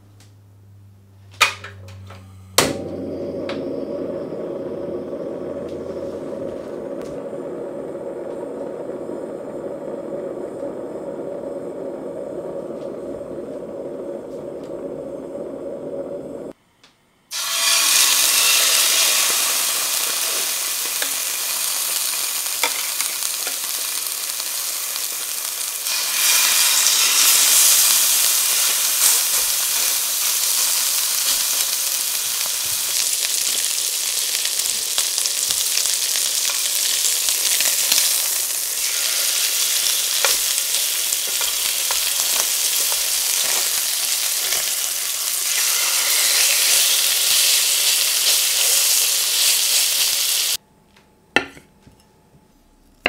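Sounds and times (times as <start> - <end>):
gas stove burner rushing: 1.2 - 16.6, 17.3 - 50.6
meat sizzling in a pan: 17.3 - 50.6.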